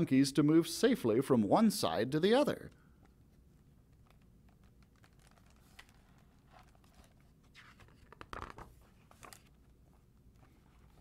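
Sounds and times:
faint clicks of book handling: 2.7s - 11.0s
paper page turning: 3.9s - 9.7s.

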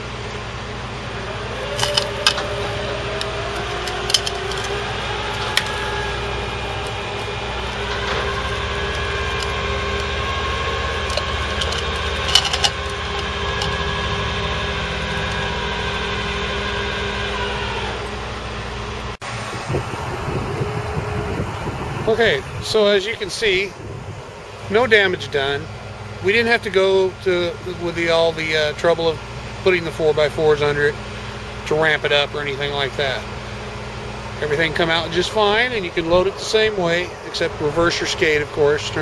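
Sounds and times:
hydraulics and winch whining: 0.0s - 39.0s
sharp metallic clanks: 7.8s - 14.1s.

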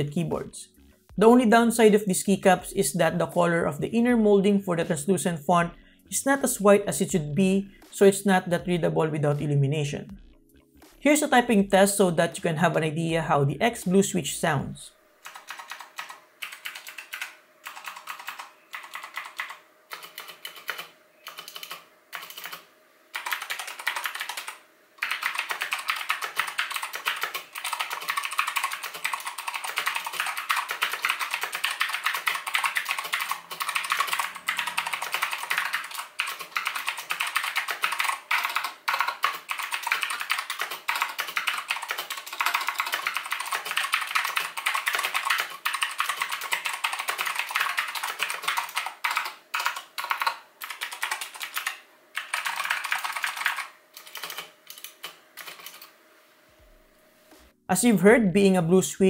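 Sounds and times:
clicky keyboard typing: 15.2s - 55.9s.

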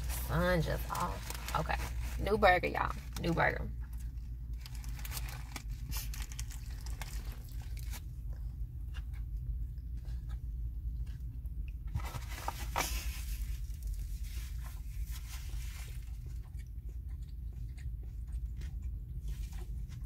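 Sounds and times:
paper napkin rustle: 0.0s - 3.2s, 12.0s - 16.2s
low hum: 0.0s - 20.0s
person chewing: 4.0s - 12.1s, 13.3s - 20.0s.

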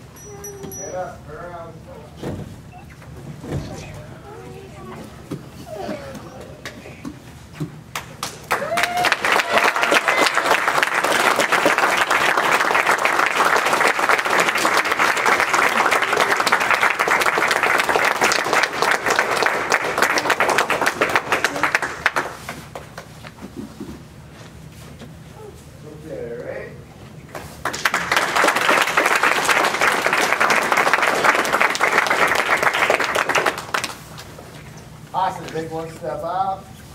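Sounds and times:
audience applause: 8.0s - 22.8s, 27.6s - 34.0s.

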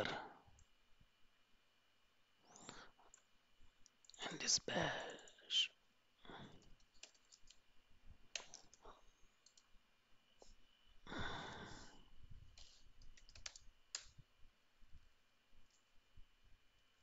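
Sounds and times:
mouse clicks: 8.3s - 9.7s, 12.5s - 14.2s
keyboard key clicks: 12.6s - 14.2s.

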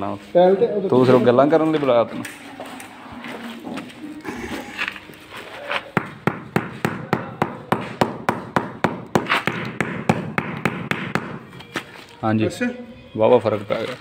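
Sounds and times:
mallet knocking wooden block: 6.0s - 11.4s.

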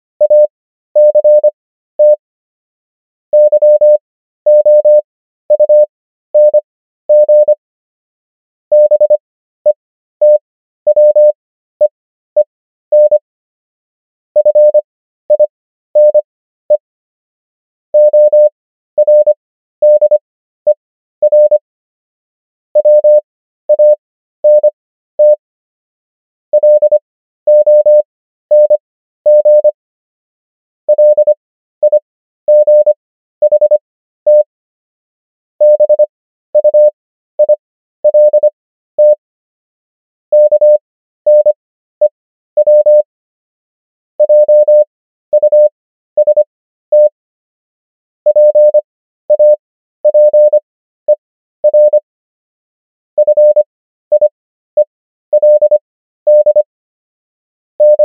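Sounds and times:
morse code tone: 0.2s - 2.2s, 14.4s - 14.8s, 33.5s - 34.5s, 35.6s - 36.0s, 36.6s - 39.2s, 40.3s - 40.7s, 42.6s - 43.0s, 44.2s - 45.6s, 48.3s - 50.6s, 51.6s - 52.0s, 53.2s - 54.3s, 55.4s - 56.6s, 57.8s - 58.0s.

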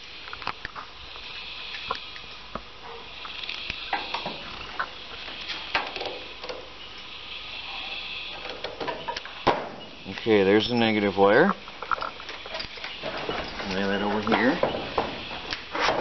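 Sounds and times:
faint high hiss: 0.0s - 16.0s.

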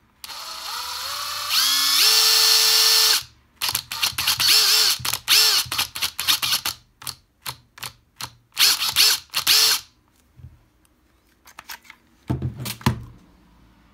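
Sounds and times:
impact driver motor spinning: 0.2s - 6.8s, 8.6s - 9.9s.

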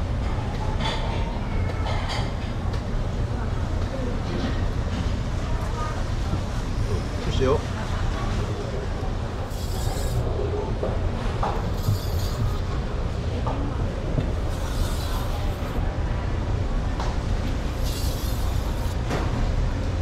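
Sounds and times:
knife scraping on whetstone: 9.5s - 10.3s, 11.6s - 12.6s, 14.3s - 15.8s, 17.7s - 19.0s.

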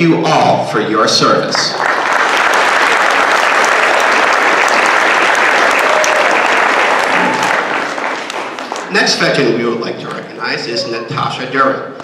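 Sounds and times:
audience applauding: 1.6s - 10.5s.

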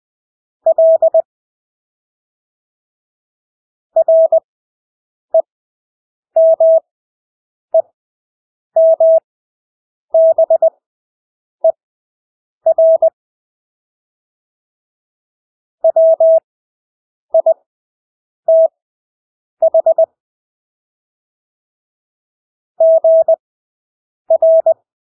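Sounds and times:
morse code tone: 24.3s - 24.8s.

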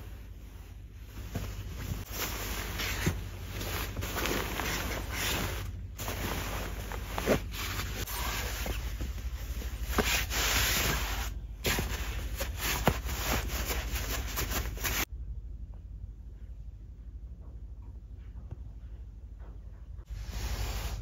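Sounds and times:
bedding rustling and scraping: 0.0s - 15.1s
steady low hum: 0.0s - 21.0s.

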